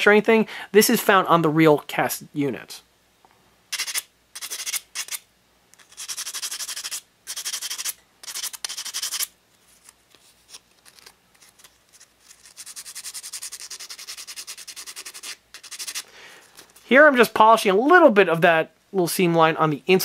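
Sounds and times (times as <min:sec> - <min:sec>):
sandpaper rubbing on metal: 0:03.7 - 0:05.2, 0:05.9 - 0:09.3, 0:12.2 - 0:16.1.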